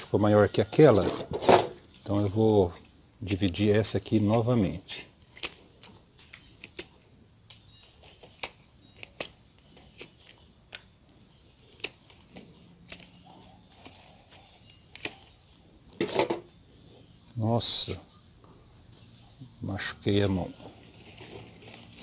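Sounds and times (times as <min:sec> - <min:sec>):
roots crunching and snapping: 0:02.0 - 0:15.5.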